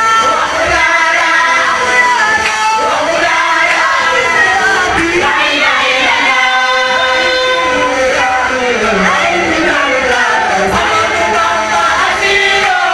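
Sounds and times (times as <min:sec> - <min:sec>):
amplified singing over loudspeaker: 0:00.0 - 0:12.9.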